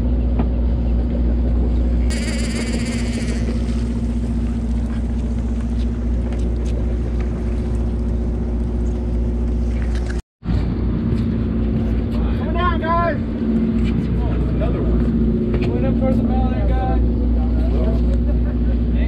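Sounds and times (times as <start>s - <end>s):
boat engine droning: 0.6s - 10.2s.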